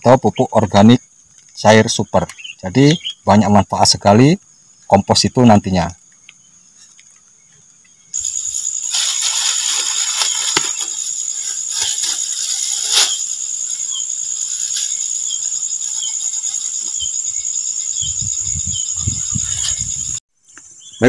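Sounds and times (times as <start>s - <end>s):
high-pitched insect buzzing: 8.2s - 20.2s
plastic bag crinkling: 8.7s - 13.3s.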